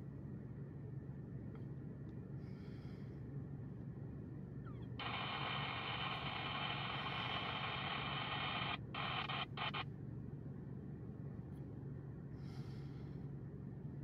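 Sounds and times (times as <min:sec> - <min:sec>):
low hum: 0:00.0 - 0:14.0
two-way radio static: 0:05.0 - 0:09.8.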